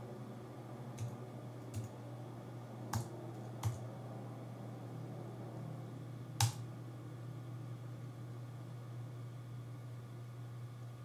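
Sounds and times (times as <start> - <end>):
low hum: 0.0 - 11.0
keyboard key presses: 2.9 - 3.8, 6.4 - 6.6.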